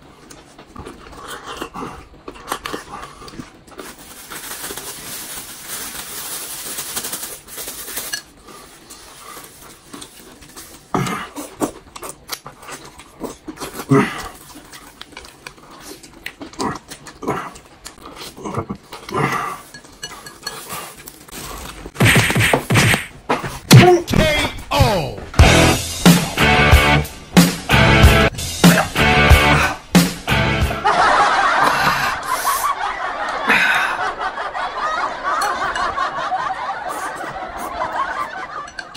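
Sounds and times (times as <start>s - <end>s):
chewing and sucking meat: 8.5s - 21.9s
chopsticks clinking on dishes: 19.6s - 21.2s, 38.6s - 38.9s.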